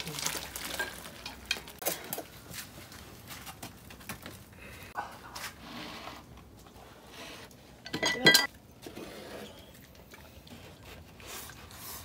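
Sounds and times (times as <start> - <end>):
tableware clinking: 7.8 - 8.6.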